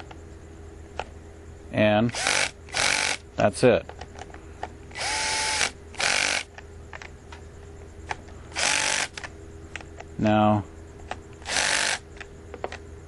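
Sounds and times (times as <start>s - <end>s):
cordless drill running: 2.1s - 3.2s, 4.9s - 6.5s, 8.6s - 9.2s, 11.4s - 12.0s.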